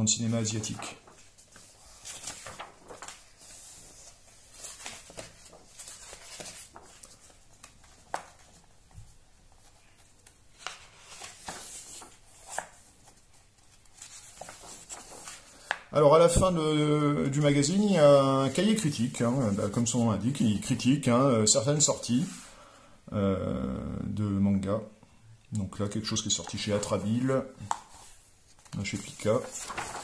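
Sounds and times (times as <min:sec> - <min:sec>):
paper pages rustling: 0:00.2 - 0:16.5, 0:25.8 - 0:30.0.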